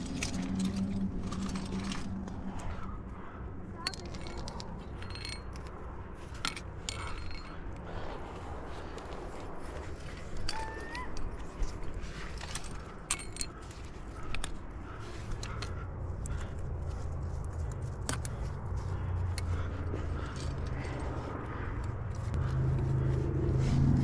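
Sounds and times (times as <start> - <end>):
gear scraping against rock: 0.0 - 2.9
metal climbing gear clinking: 0.0 - 23.2
low rumble: 0.0 - 24.0.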